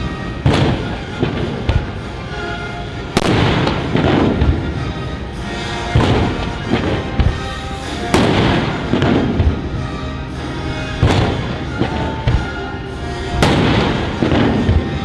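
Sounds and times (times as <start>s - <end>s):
loud booming hits: 0.0s - 2.0s, 3.2s - 5.0s, 5.9s - 9.9s, 11.0s - 12.6s, 13.4s - 15.0s
background music with held tones: 0.0s - 15.0s.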